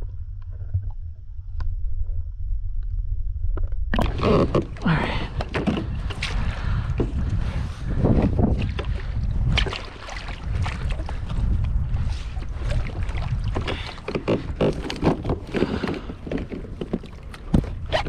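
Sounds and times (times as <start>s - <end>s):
wind rumbling on microphone: 0.0s - 18.0s
knocks and thumps on kayak: 3.9s - 7.4s, 8.1s - 11.8s, 12.4s - 18.0s
water splashing: 4.0s - 6.8s, 8.5s - 11.6s, 12.2s - 18.0s.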